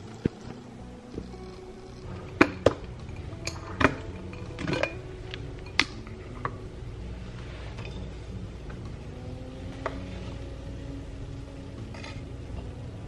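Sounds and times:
pots clinking and knocking: 0.1 - 6.6.

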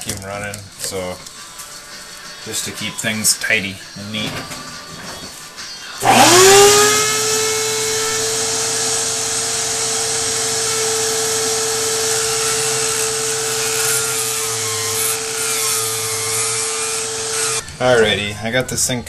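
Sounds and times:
power cutting tool humming: 6.0 - 18.0.

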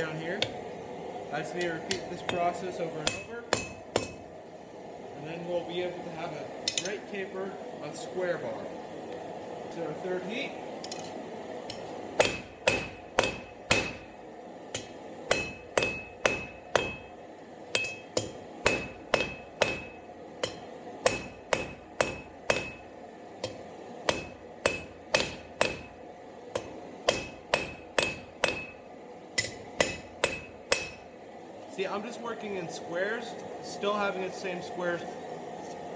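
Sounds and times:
hammer striking steel on anvil: 1.6 - 4.3, 6.6 - 7.0, 10.9 - 31.1.

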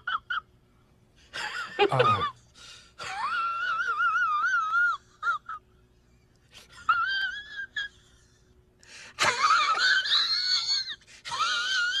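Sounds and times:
man's high-pitched falsetto laugh: 0.0 - 0.5, 3.0 - 5.7, 6.7 - 8.3, 9.2 - 12.0.

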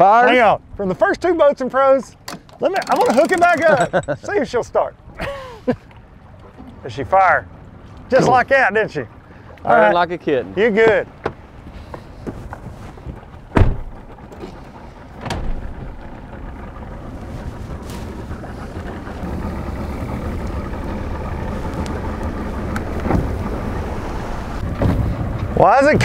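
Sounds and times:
outboard motor idling: 0.0 - 26.0
pickup truck idling: 13.2 - 24.7
sharp knocks: 13.5 - 14.0.

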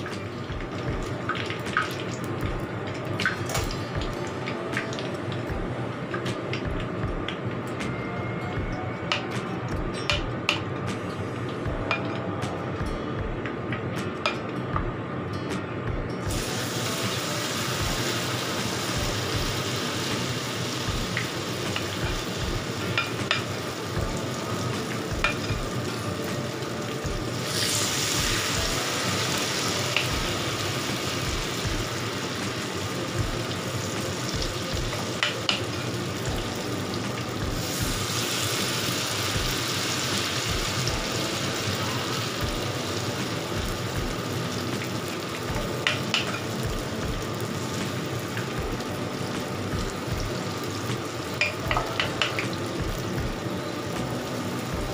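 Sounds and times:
oil sizzling in a wok: 0.0 - 7.8, 16.3 - 54.9
wooden spatula clicking on pan: 51.4 - 52.5.

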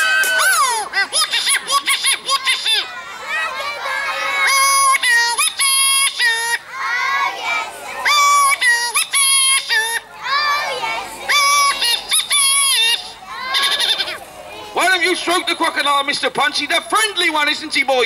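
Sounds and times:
people talking: 0.2 - 18.0
buzzy reedy puppet squawk: 1.1 - 2.9, 4.4 - 6.6, 8.1 - 10.0, 11.3 - 14.2.

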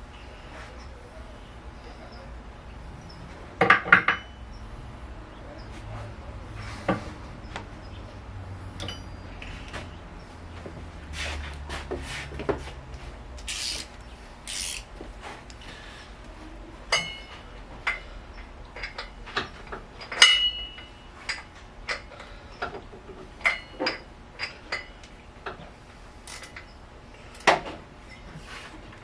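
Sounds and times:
metal tools clinking on engine parts: 8.7 - 9.9, 16.9 - 22.8, 23.4 - 25.0, 26.2 - 28.4.

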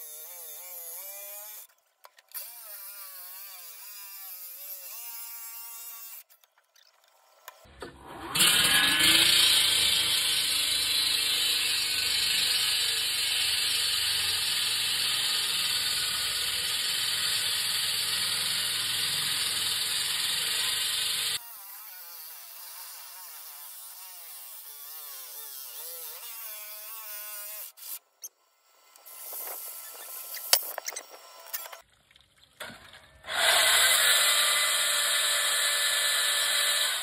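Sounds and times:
concrete saw grinding: 7.1 - 31.8, 32.7 - 37.0.

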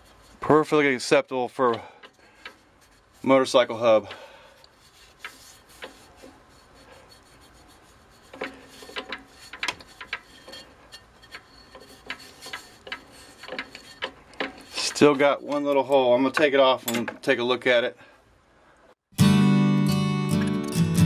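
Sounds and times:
fingers rubbing metal surface: 0.0 - 0.4, 2.4 - 3.8, 4.6 - 17.0.

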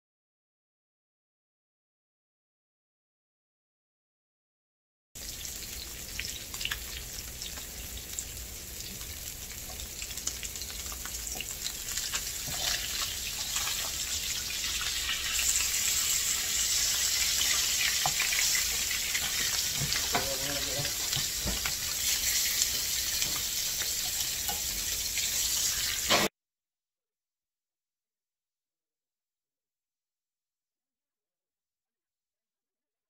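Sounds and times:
fish fillets sizzling in a pan: 5.2 - 26.3.

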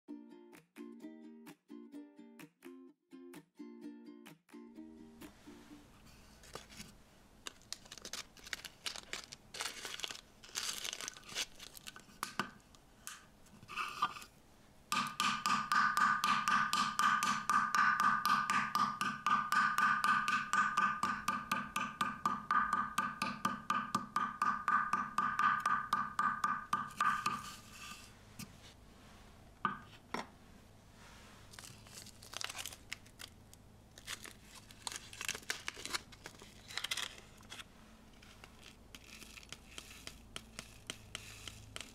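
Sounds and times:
plastic bag crinkling: 7.4 - 12.2, 31.5 - 40.3
spoon crushing biscuits: 7.5 - 12.5, 38.2 - 41.9.

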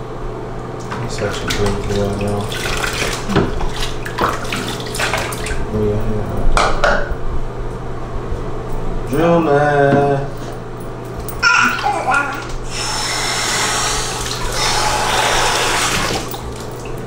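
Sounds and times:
bath water splashing: 0.8 - 5.7, 11.4 - 17.0
baby voice: 11.4 - 15.5.

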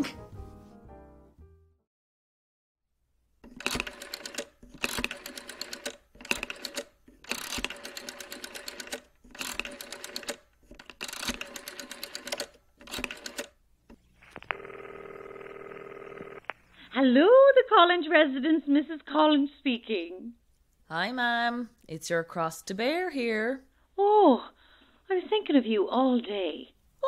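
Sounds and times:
rotary telephone dial clicking: 3.5 - 13.6.

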